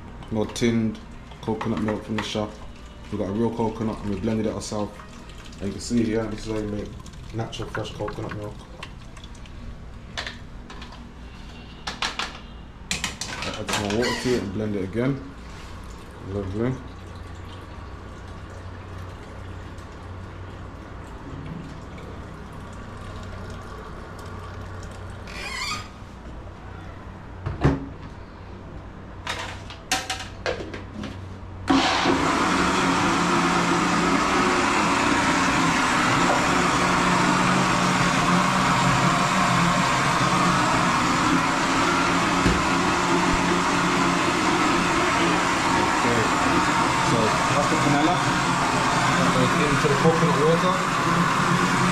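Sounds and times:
electric blender running: 0:31.7 - 0:51.9.

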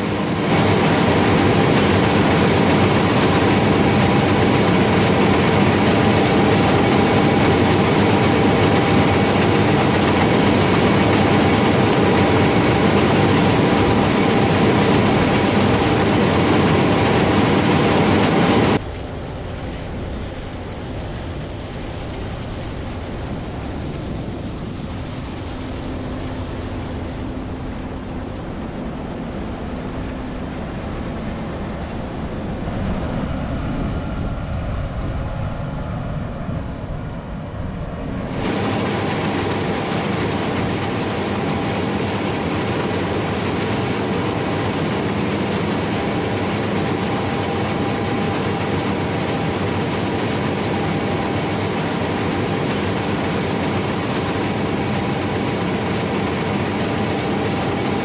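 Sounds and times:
combine harvester drone: 0:00.0 - 0:58.0.

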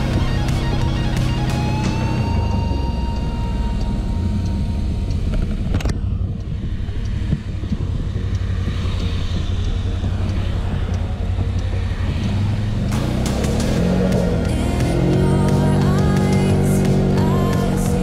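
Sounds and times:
atv engine running: 0:00.0 - 0:18.0
wind rumble on microphone: 0:03.9 - 0:13.0.

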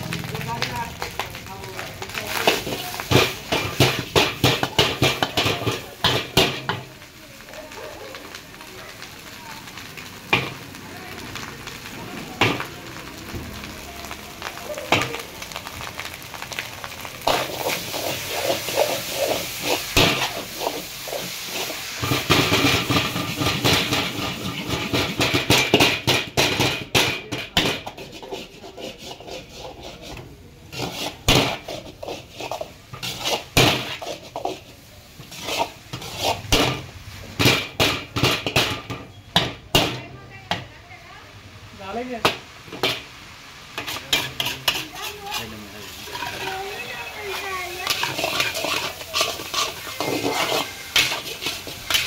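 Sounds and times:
rice sizzling in a wok: 0:00.0 - 0:52.0
metal ladle clanking on wok: 0:02.3 - 0:06.9, 0:47.3 - 0:52.0.

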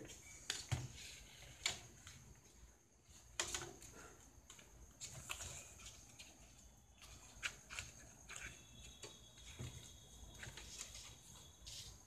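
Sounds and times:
hands clicking and scraping: 0:04.4 - 0:09.6.

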